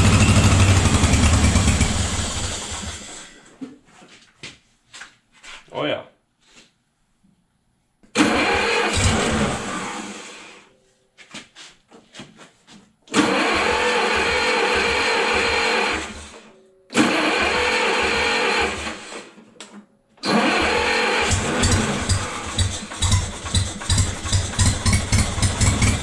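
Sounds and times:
gas engine cranking: 17.0s - 19.2s, 20.2s - 23.9s.

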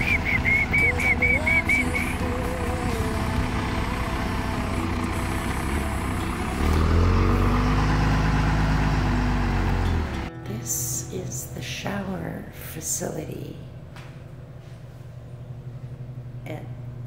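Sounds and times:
pickup truck engine running: 0.0s - 10.3s.

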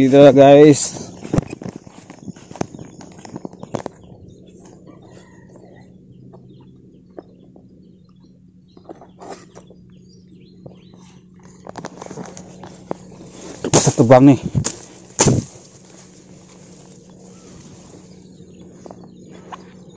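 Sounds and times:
footsteps on grass path: 0.1s - 5.4s, 10.7s - 19.9s
tall grass swishing: 14.6s - 18.1s.

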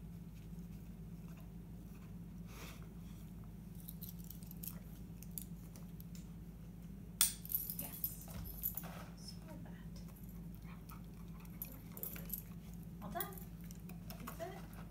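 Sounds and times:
steady low hum: 0.0s - 14.9s
dog collar jingling: 11.4s - 13.9s.

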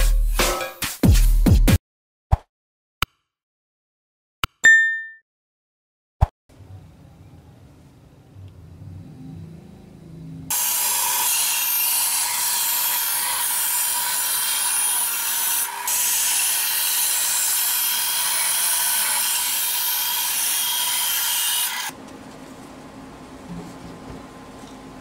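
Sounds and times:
band saw cutting wood: 10.5s - 21.9s.

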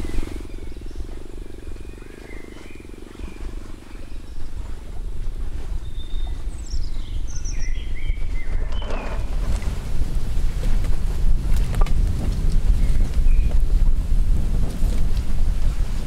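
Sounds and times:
bird chirps: 0.0s - 9.3s, 12.7s - 13.8s
low buzz: 0.0s - 16.0s
wind buffeting microphone: 0.0s - 16.0s.

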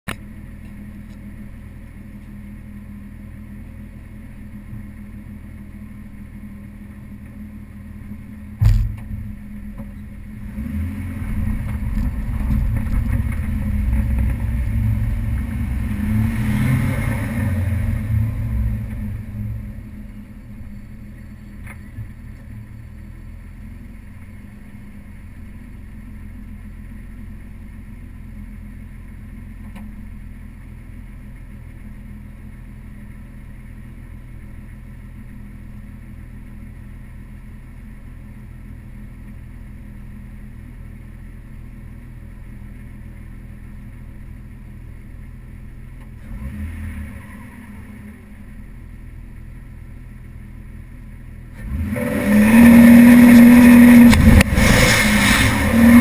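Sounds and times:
car engine idling: 0.1s - 56.0s
sharp thump: 8.6s - 10.0s.

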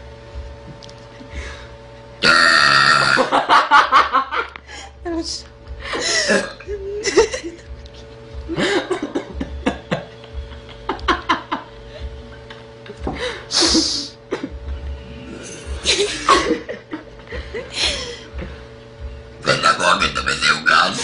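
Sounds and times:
faint steady hum: 0.0s - 21.0s
laughter and chuckles: 3.2s - 4.9s, 5.8s - 14.7s, 15.6s - 18.6s.

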